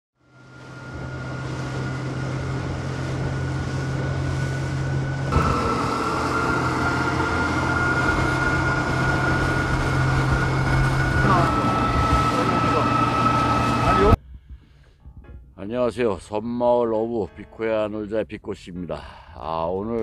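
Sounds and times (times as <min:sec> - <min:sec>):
boat engine running: 0:00.2 - 0:15.5.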